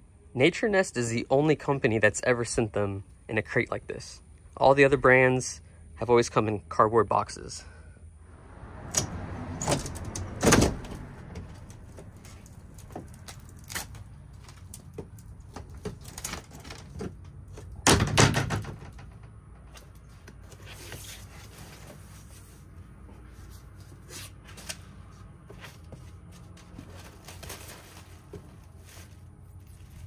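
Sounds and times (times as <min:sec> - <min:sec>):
knocks and clicks of crate handling: 0:14.4 - 0:20.4
packing sheet rustling: 0:26.6 - 0:30.0.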